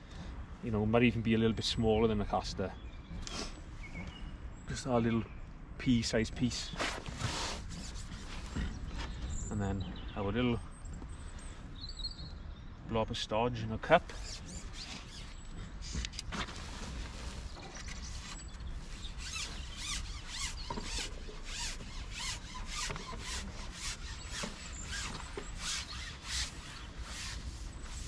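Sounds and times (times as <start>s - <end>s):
fishing pole sliding through hands: 6.7s - 9.2s, 14.1s - 28.0s.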